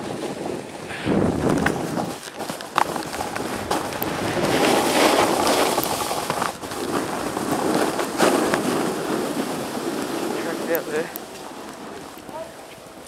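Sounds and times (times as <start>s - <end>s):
snowboard rushing through powder: 0.0s - 13.0s
wind on microphone: 0.0s - 13.0s.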